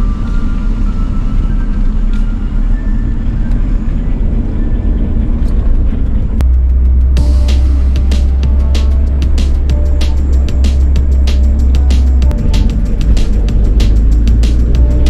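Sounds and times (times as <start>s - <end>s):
car engine and road rumble: 0.0s - 15.0s
sharp ticks: 6.4s - 15.0s.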